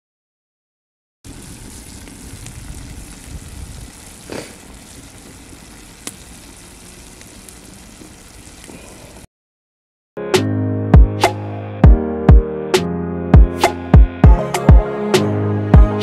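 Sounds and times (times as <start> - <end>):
stew simmering and sizzling: 1.3 - 9.2
burning wood crackles: 1.3 - 9.3.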